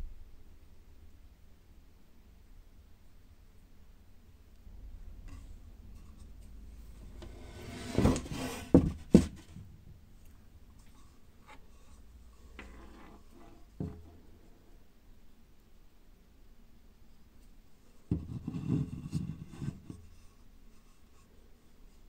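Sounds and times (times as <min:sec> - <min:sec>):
wooden cup rubbing scrape: 0:05.3 - 0:09.4, 0:10.8 - 0:14.2, 0:18.1 - 0:22.0.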